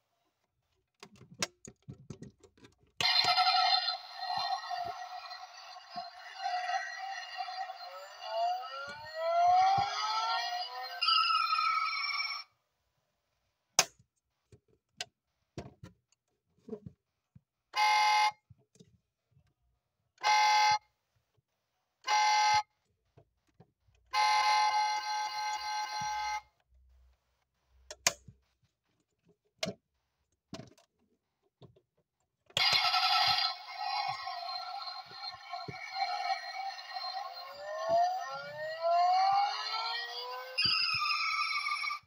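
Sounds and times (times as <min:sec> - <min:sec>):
electronic toy car horn honks: 0:03.0 - 0:10.0, 0:17.8 - 0:18.4, 0:20.2 - 0:20.8, 0:22.1 - 0:22.7, 0:24.1 - 0:26.4, 0:32.6 - 0:37.6
loud toy sound: 0:03.0 - 0:12.4, 0:32.6 - 0:42.0.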